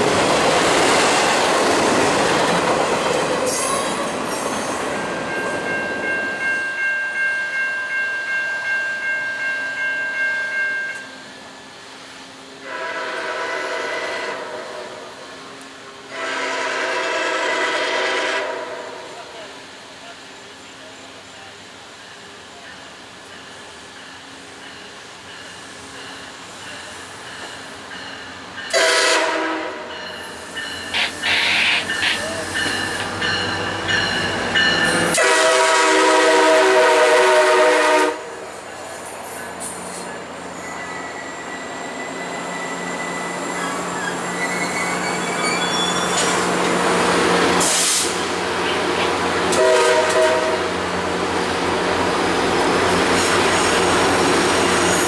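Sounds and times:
train wheels and rail noise: 0.0s - 55.0s
train horn blasts: 12.6s - 15.0s, 16.1s - 19.1s, 28.7s - 29.9s, 35.0s - 38.4s, 49.5s - 50.8s
high wheel squeal: 30.1s - 35.2s, 38.2s - 46.5s.

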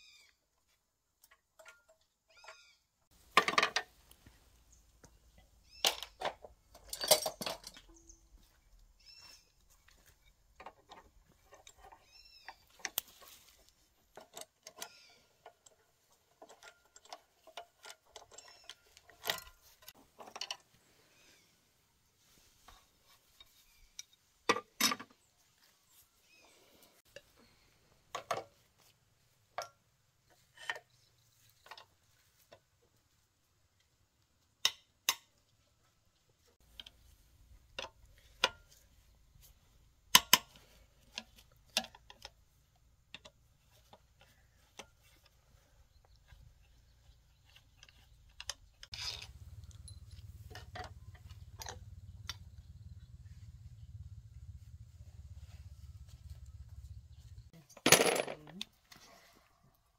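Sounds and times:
metal tools clicking and clinking: 1.2s - 2.6s, 5.8s - 8.2s, 14.1s - 20.6s, 47.4s - 52.4s, 57.7s - 58.7s
low steady rumble: 48.9s - 57.5s.

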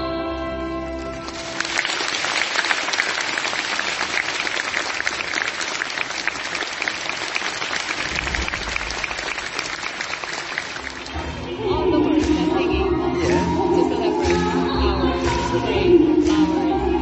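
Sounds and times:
audience applauding: 1.0s - 11.5s
choral singing: 11.0s - 17.0s.

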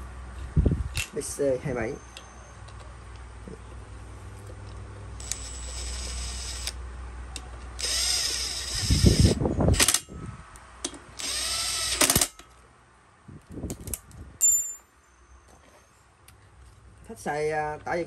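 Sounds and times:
cordless drill running: 5.2s - 6.8s, 7.8s - 9.9s, 11.2s - 12.3s.

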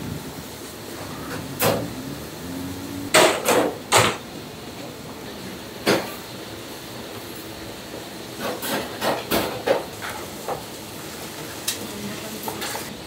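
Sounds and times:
background hiss: 0.0s - 3.2s.

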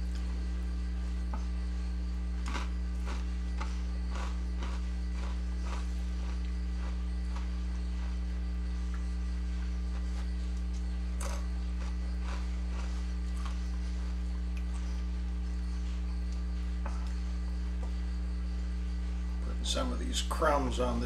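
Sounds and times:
low electrical hum: 0.0s - 21.0s
chips crunching: 2.4s - 8.2s, 10.6s - 13.6s.

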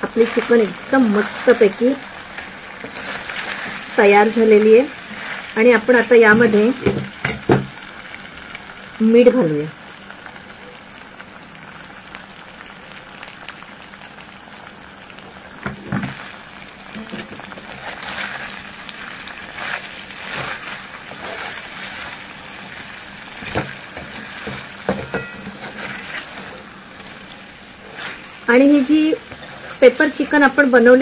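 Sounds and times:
chicken sizzling in a pan: 0.0s - 31.0s
ladle scraping a pan: 19.6s - 22.1s, 23.4s - 26.7s, 27.8s - 28.3s, 29.2s - 30.0s.

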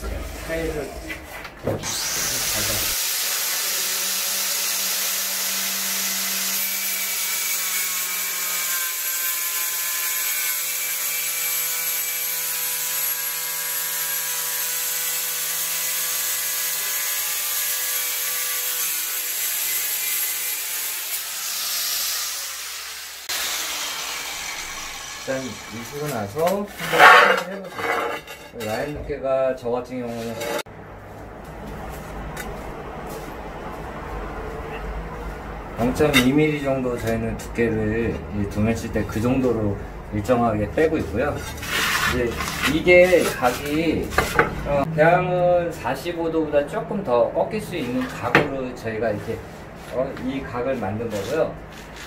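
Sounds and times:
angle grinder cutting tile: 1.8s - 28.9s, 30.1s - 30.7s, 41.4s - 44.9s.

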